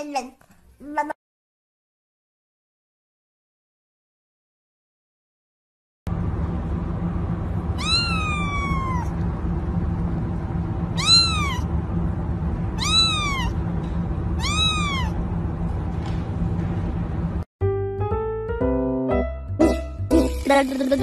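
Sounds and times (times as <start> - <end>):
low background hum: 6.1 - 17.5
kitten meowing: 7.8 - 9.2, 10.9 - 11.7, 12.8 - 13.6, 14.4 - 15.2.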